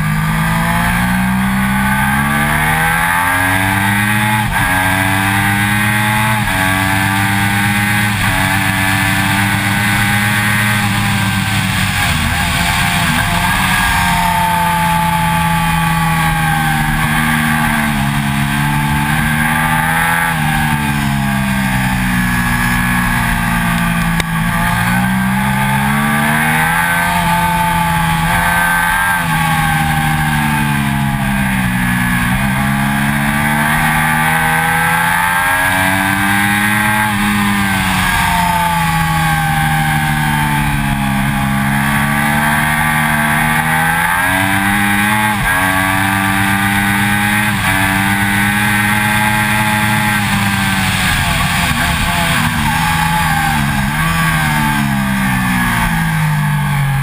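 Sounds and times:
motorcycle engine at racing speed: 0.0 - 57.0
wind and road noise: 0.0 - 57.0.

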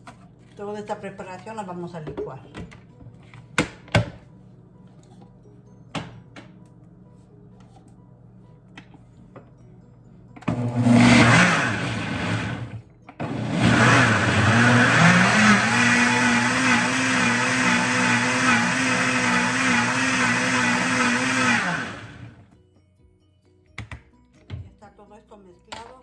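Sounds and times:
blender motor running: 10.5 - 22.4.

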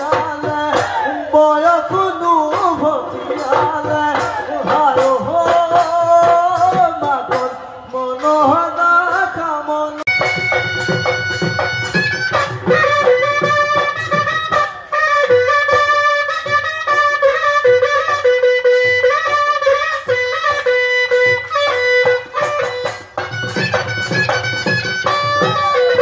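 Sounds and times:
wind instrument melody: 9.9 - 26.0
hand drum beat: 21.2 - 26.0.

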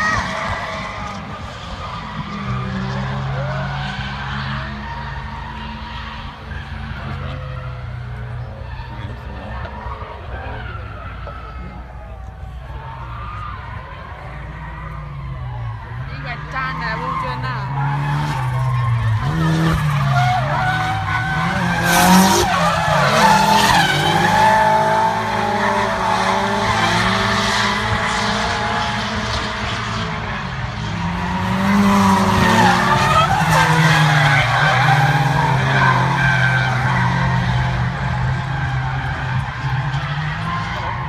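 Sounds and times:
car engines revving hard: 0.0 - 41.0
tyres squealing: 14.5 - 29.1, 30.9 - 41.0.

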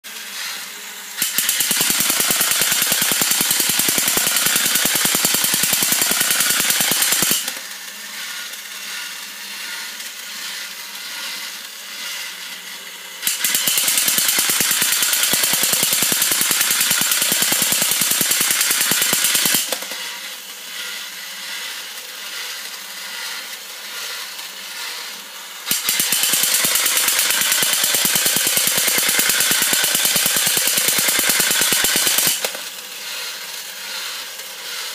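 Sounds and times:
toy motor whirring: 0.0 - 34.9
toy robot guns clattering: 1.2 - 7.6, 13.2 - 20.0, 25.7 - 32.8.

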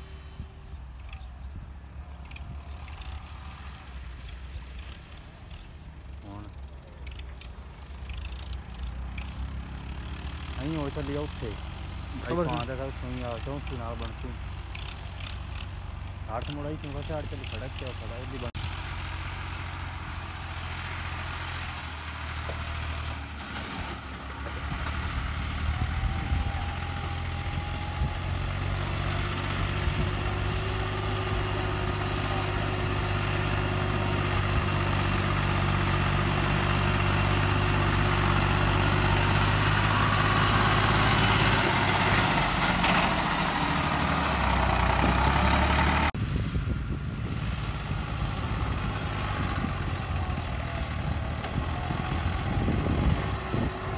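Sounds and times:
tractor diesel engine under load: 0.0 - 53.9.

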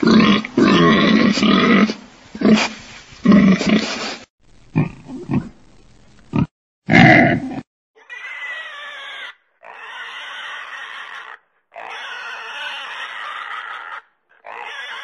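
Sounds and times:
pig calling: 6.3 - 15.0.

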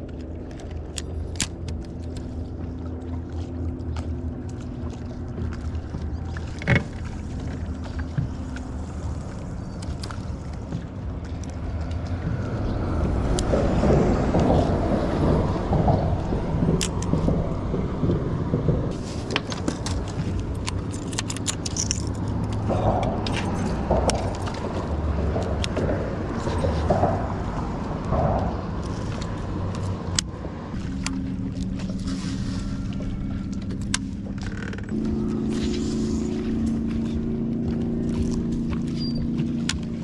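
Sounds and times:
boat motor humming: 0.0 - 40.0
clicks and rattles: 13.1 - 31.1.

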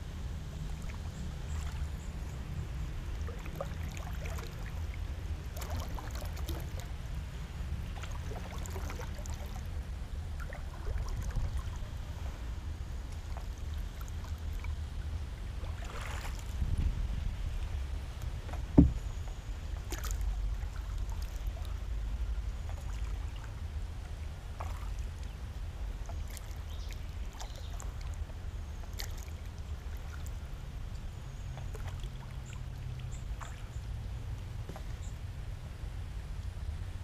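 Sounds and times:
wind rumble on microphone: 0.0 - 37.0
water drips and splashes: 0.5 - 7.2, 7.8 - 12.4, 13.0 - 35.4
paddle stroking through water: 5.5 - 6.9, 15.6 - 16.7, 18.3 - 21.6
sharp knock on wood: 18.8 - 19.0.

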